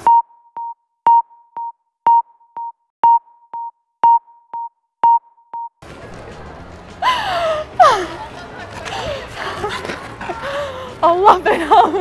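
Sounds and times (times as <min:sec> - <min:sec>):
electronic tick-tock beeps: 0:00.0 - 0:05.8.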